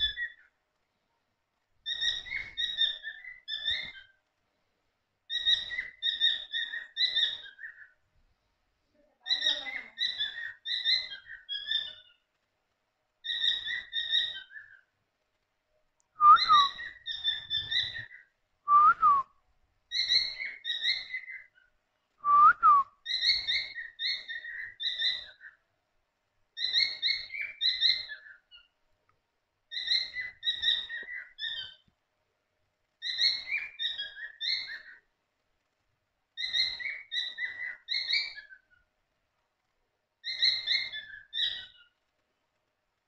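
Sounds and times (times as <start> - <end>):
cockatiels chirping: 5.3 - 7.9, 9.3 - 12.2, 13.2 - 14.8, 16.6 - 18.3, 19.9 - 21.6, 23.0 - 25.6, 29.7 - 31.8, 33.0 - 35.0, 36.4 - 38.8, 40.2 - 41.9.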